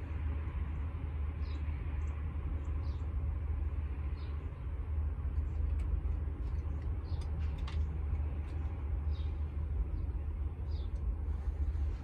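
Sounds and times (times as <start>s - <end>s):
steady low rumble: 0.0s - 12.0s
cats eating with faint clicks: 4.5s - 9.6s.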